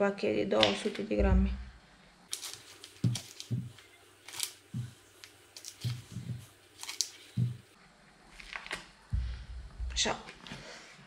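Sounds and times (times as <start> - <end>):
biscuits being crushed: 2.3 - 9.0.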